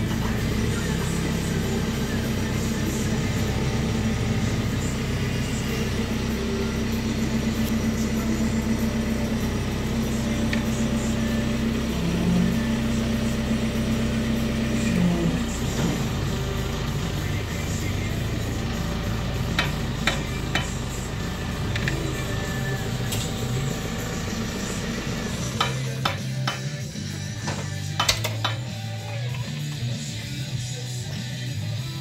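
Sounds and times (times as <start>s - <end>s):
diesel engine under hydraulic load: 0.0s - 30.6s.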